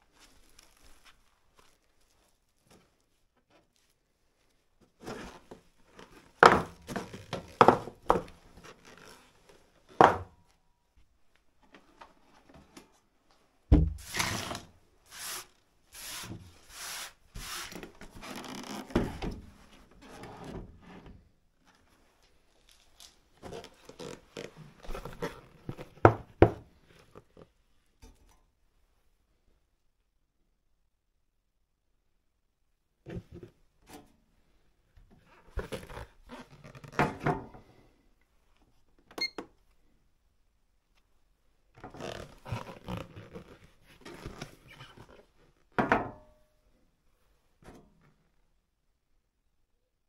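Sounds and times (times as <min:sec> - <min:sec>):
rustling: 0:00.0 - 0:09.8
heavy thump: 0:13.7 - 0:14.1.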